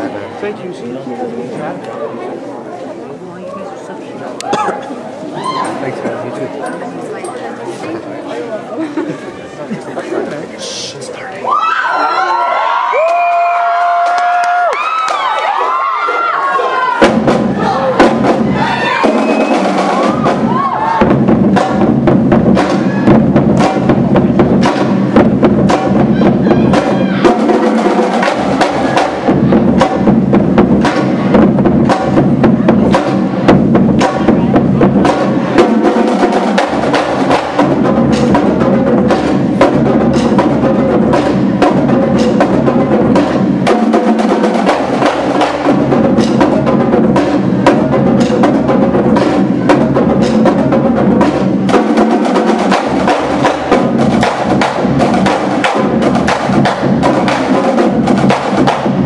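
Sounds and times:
marching drumline playing: 13.0s - 59.0s.

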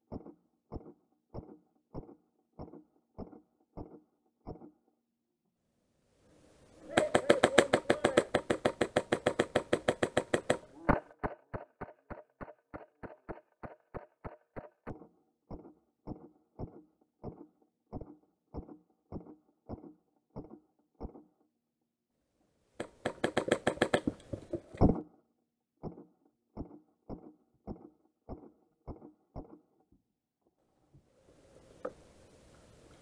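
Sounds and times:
airsoft rifle automatic burst: 6.9s - 14.1s, 22.9s - 24.2s.

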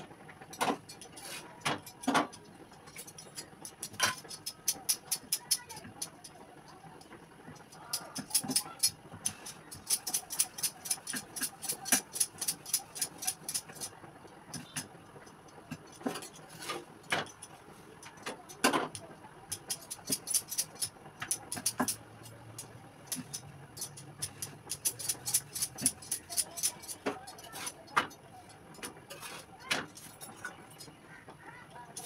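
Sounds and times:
metal utensils clicking: 0.5s - 6.1s, 7.7s - 13.9s, 19.5s - 28.1s, 28.7s - 30.9s.

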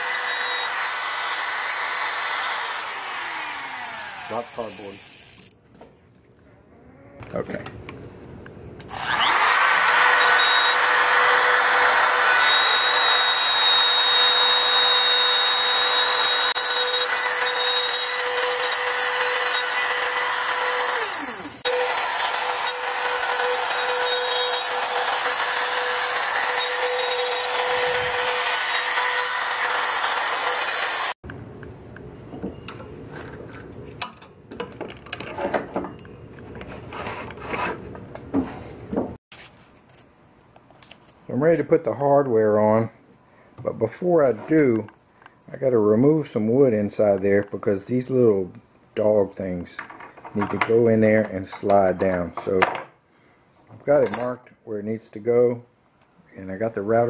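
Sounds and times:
router whining while cutting wood: 0.0s - 5.2s, 8.9s - 31.2s.

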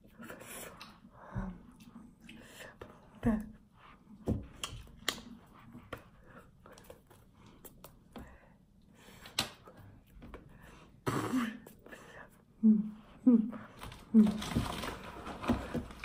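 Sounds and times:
hands clicking and tapping: 4.3s - 8.3s.

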